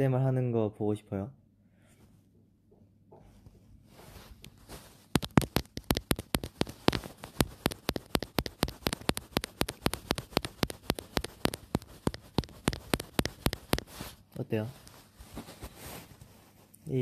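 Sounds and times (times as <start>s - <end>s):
tapping and crackling on microphone: 5.1s - 14.2s.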